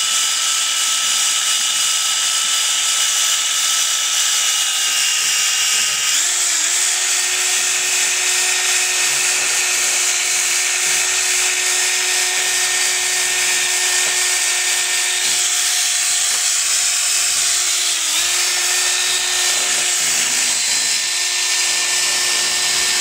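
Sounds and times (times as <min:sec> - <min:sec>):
electric drill motor whine: 0:00.0 - 0:23.0
wire brush scrubbing metal: 0:05.0 - 0:23.0.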